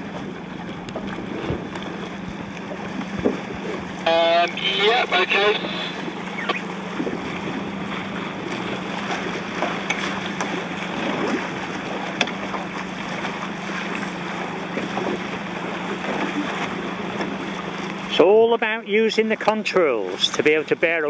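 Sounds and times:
choppy water: 0.0s - 21.0s
wind: 0.0s - 21.0s
low steady hum: 3.8s - 11.8s.

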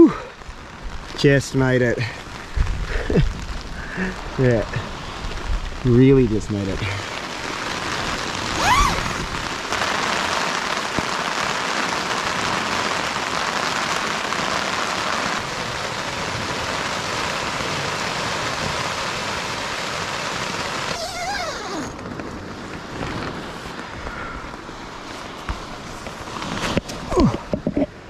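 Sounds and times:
rain hissing: 0.0s - 28.0s
pitch sliding sound: 8.5s - 9.3s.

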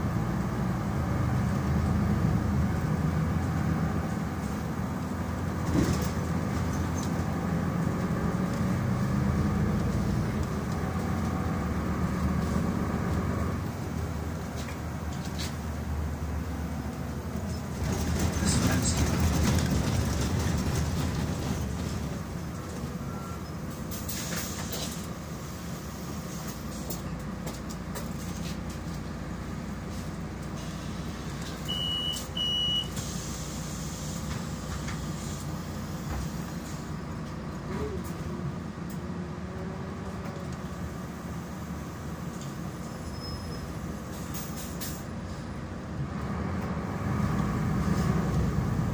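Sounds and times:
bus engine and road noise: 0.0s - 48.9s
short high beeps: 31.7s - 32.9s.

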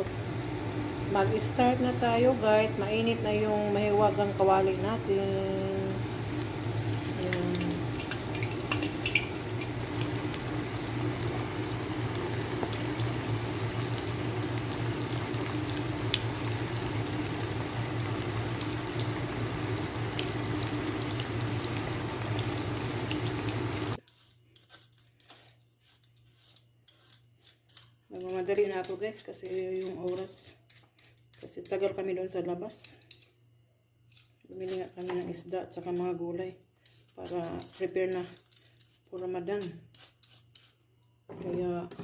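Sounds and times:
low hum: 0.0s - 24.0s
fish deep-frying in oil: 5.4s - 24.0s
potatoes being peeled: 24.0s - 31.7s, 34.1s - 36.1s, 36.8s - 40.8s.

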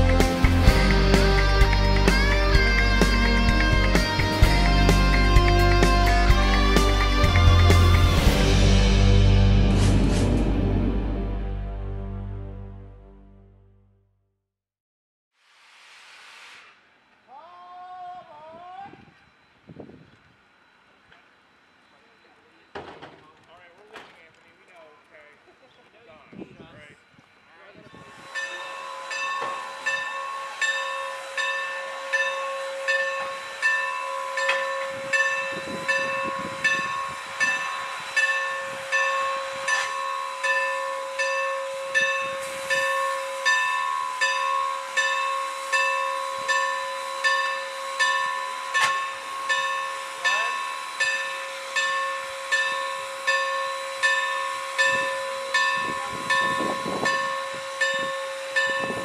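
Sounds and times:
steam hissing: 15.4s - 17.8s, 27.9s - 59.0s
steam air pump pulsing: 27.9s - 59.0s.

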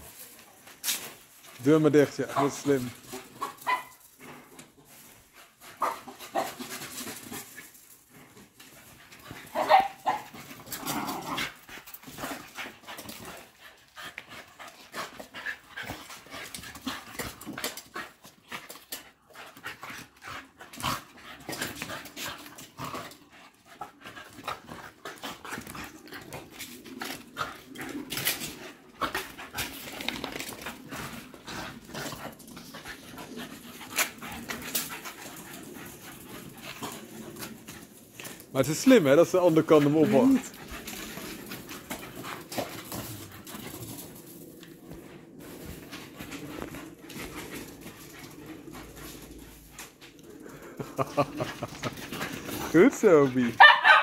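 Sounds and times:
dogs panting: 0.0s - 53.7s
dog barking: 3.6s - 4.0s, 9.5s - 10.2s, 53.6s - 54.0s.

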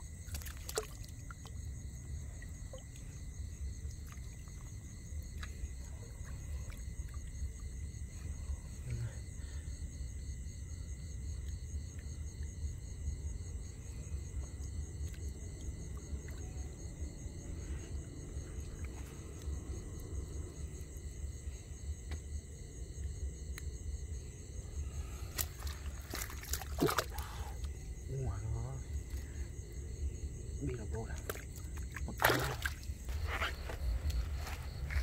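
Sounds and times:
water splash and rustle: 0.0s - 1.8s, 25.0s - 27.7s, 31.0s - 35.0s
night insects trilling: 0.0s - 35.0s.

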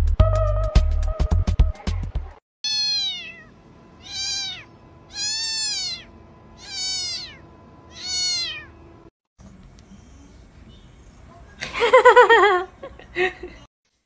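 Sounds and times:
cat meowing: 2.6s - 8.8s.

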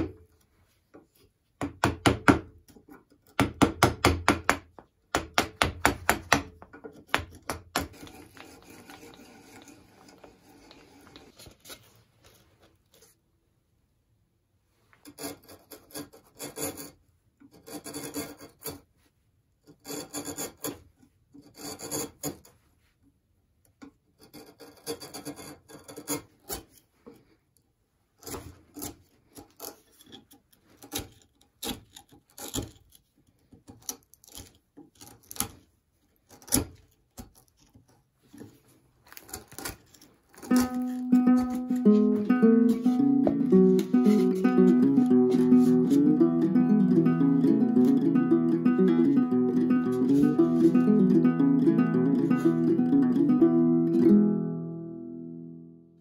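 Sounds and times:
chisel scraping wood: 6.8s - 11.9s, 15.0s - 18.9s, 19.6s - 22.6s, 24.2s - 27.2s, 28.2s - 35.6s, 36.2s - 46.1s
plucked-string music: 40.4s - 56.0s.

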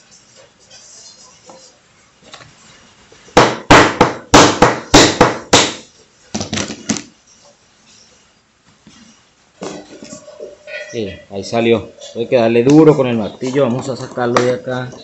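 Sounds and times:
hammer striking metal punch: 3.4s - 5.8s.

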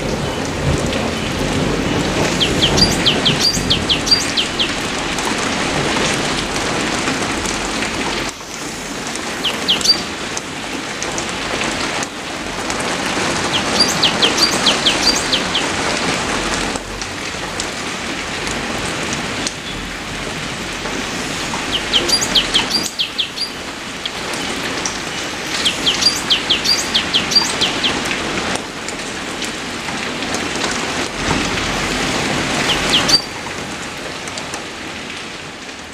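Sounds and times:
rain on leaves: 0.0s - 35.9s
bird chirping: 2.3s - 4.9s, 9.4s - 10.1s, 13.5s - 15.7s, 21.6s - 23.6s, 25.1s - 28.0s, 32.6s - 33.4s.

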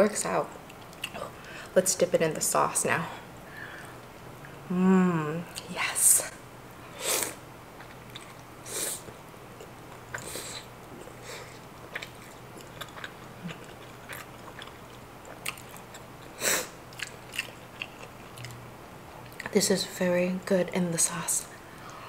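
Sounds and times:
chewing clicks: 16.9s - 19.5s.

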